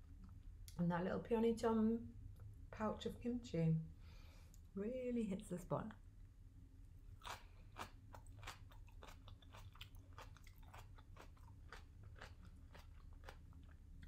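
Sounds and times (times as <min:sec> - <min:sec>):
crisp crunching while chewing: 0:07.2 - 0:14.0.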